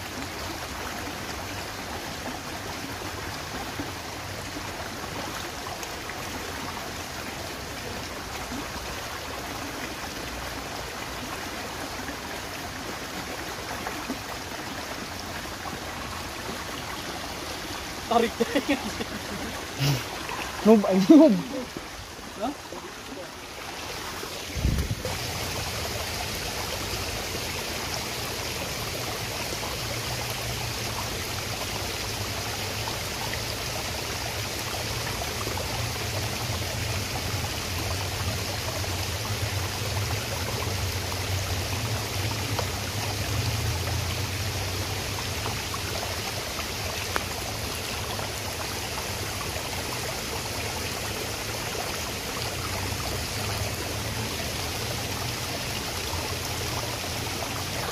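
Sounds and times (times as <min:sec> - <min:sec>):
stream water flowing: 0:00.0 - 0:57.9.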